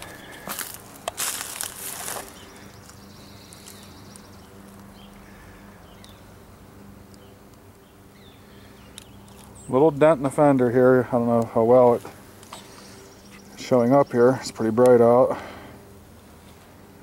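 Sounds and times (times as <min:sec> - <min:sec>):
footsteps through dry leaves: 0:00.0 - 0:05.0.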